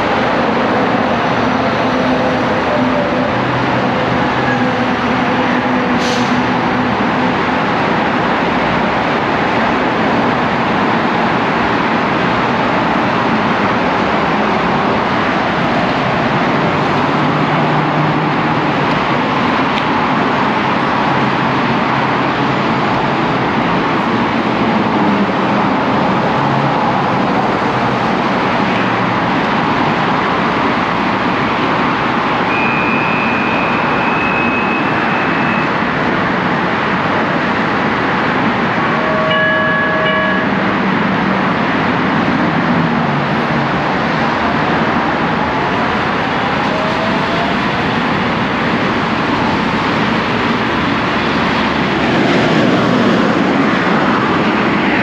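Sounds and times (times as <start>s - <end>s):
heavy freeway traffic roar: 0.0s - 55.0s.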